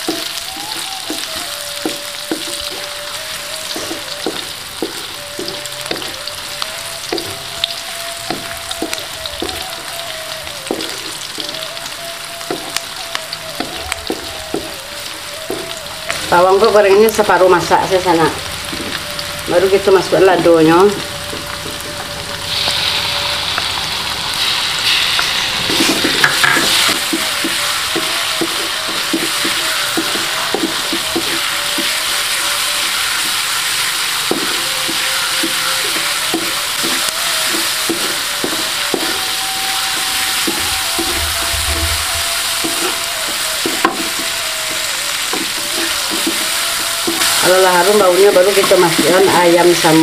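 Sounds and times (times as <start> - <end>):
food sizzling in oil: 0.0 - 50.0
wooden spatula scraping wok: 20.4 - 50.0.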